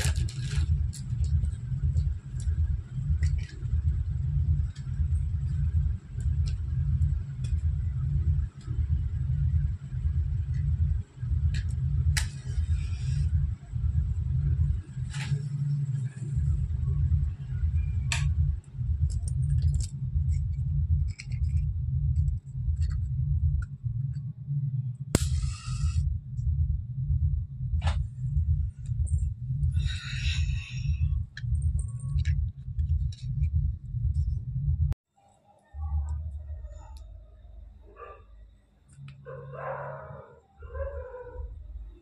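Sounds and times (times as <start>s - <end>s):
bangles and packets clicking and rustling: 0.0s - 8.7s, 19.0s - 23.1s
loud uneven low rumble: 0.0s - 35.0s
bangles clinking and jingling: 30.4s - 33.2s.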